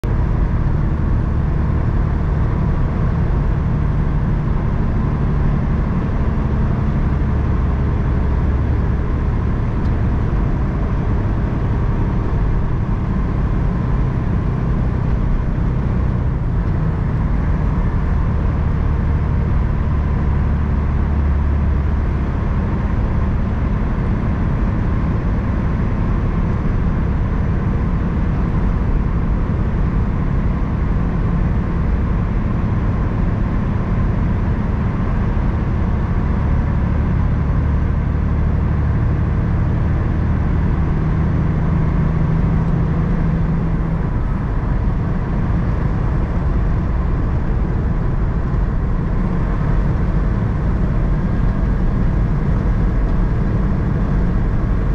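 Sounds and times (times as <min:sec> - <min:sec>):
truck diesel engine running: 0:00.0 - 0:54.9
tyre and road noise: 0:41.1 - 0:54.9.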